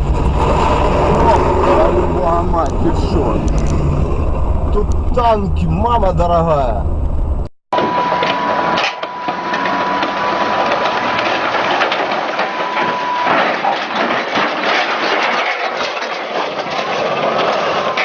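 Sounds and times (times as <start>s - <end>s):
tracked vehicle engine running hard: 0.0s - 5.4s
steady high whine: 0.0s - 14.7s
tracks clanking and rattling: 0.0s - 18.0s.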